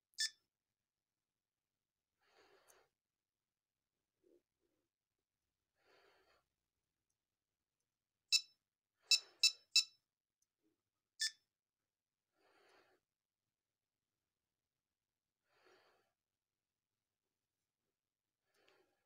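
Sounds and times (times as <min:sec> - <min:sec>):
short electronic beeps: 0:08.3 - 0:10.0.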